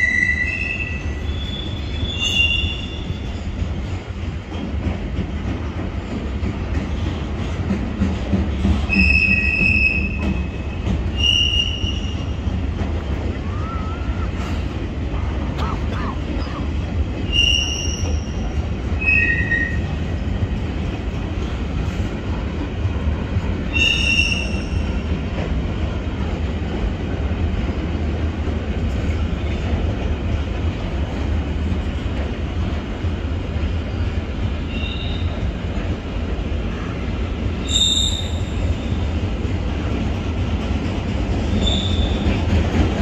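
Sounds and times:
train wheels squealing: 0:00.0 - 0:03.9, 0:08.5 - 0:12.6, 0:17.2 - 0:20.2, 0:23.6 - 0:25.2, 0:33.9 - 0:35.7, 0:37.6 - 0:39.2, 0:41.4 - 0:42.6
train rumbling past: 0:00.0 - 0:43.0.

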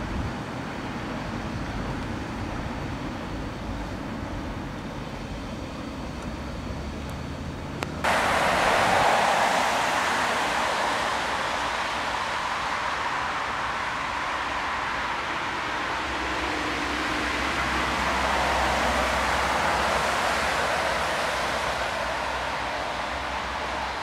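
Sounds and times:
low rumble: 0:08.1 - 0:18.4
steam hissing: 0:08.1 - 0:24.0.

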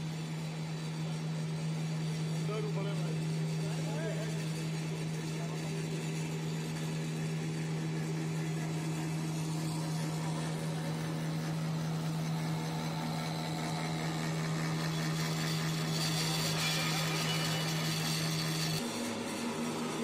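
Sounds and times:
machinery noise: 0:00.0 - 0:19.8
low motor hum: 0:00.0 - 0:20.0.

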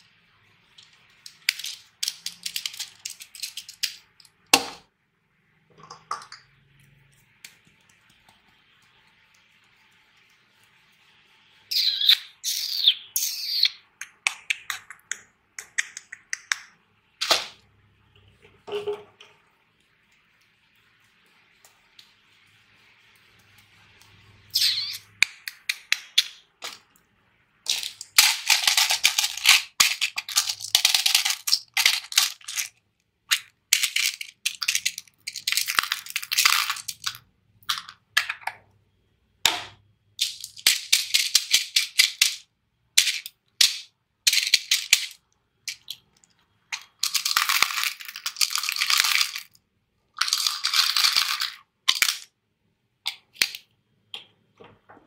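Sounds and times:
hard pieces clattering into plastic: 0:00.8 - 0:04.8, 0:27.7 - 0:38.5, 0:39.5 - 0:42.4, 0:43.0 - 0:46.0, 0:46.7 - 0:49.6, 0:50.2 - 0:52.3.

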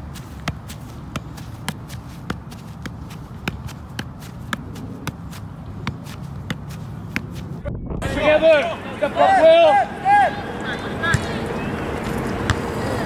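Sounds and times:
ball knocking on foot: 0:00.4 - 0:07.5.

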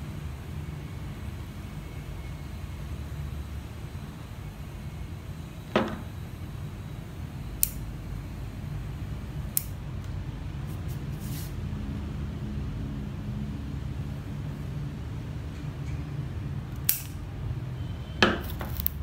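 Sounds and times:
steady low hum: 0:00.0 - 0:19.0
scissors snipping wire: 0:07.6 - 0:07.8, 0:09.5 - 0:09.8, 0:16.7 - 0:17.2, 0:18.4 - 0:19.0.

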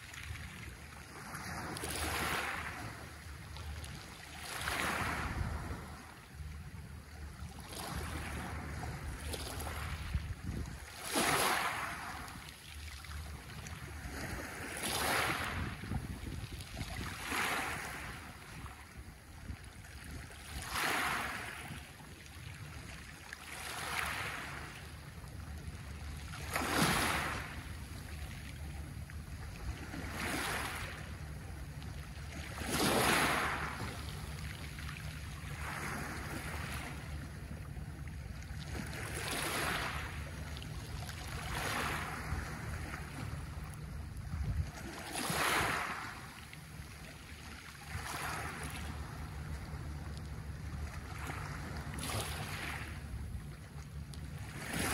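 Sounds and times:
waves washing on pebble beach: 0:01.2 - 0:02.9, 0:04.4 - 0:05.8, 0:10.9 - 0:12.3, 0:14.1 - 0:15.8, 0:16.9 - 0:18.2, 0:20.5 - 0:21.6, 0:23.5 - 0:24.6, 0:26.4 - 0:27.6, 0:30.0 - 0:31.0, 0:32.5 - 0:33.8, 0:35.6 - 0:36.9, 0:38.9 - 0:40.1, 0:41.3 - 0:42.9, 0:44.9 - 0:46.2, 0:47.9 - 0:48.8.

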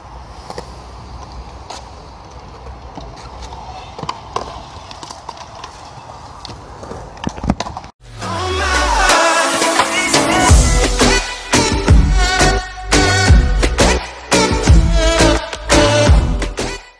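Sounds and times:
music: 0:08.0 - 0:16.9.

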